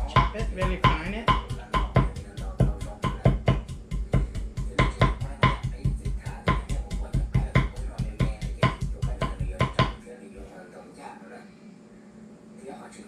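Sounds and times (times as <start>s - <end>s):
knife chopping on wooden board: 0.0s - 10.0s.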